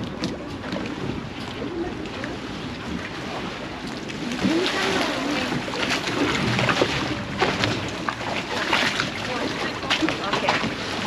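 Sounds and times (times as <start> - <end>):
water and boat noise: 0.0 - 11.0
group of people chattering: 4.2 - 6.5.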